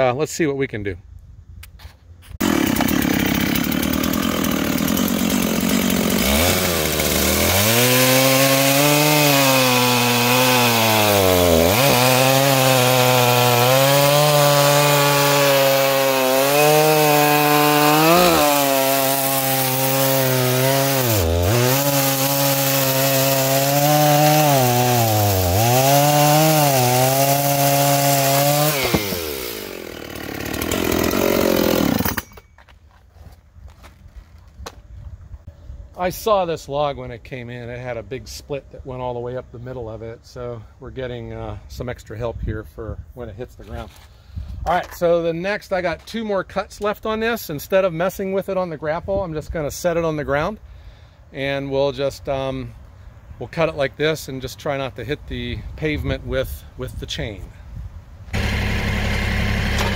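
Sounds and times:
chainsaw cutting log: 2.4 - 32.5, 58.3 - 59.9.

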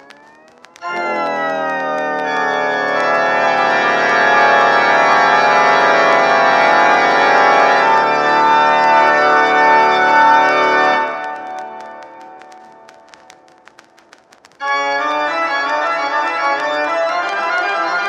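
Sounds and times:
vinyl surface crackle: 0.0 - 4.4, 10.0 - 18.0
organ music on vinyl record: 0.0 - 7.8.

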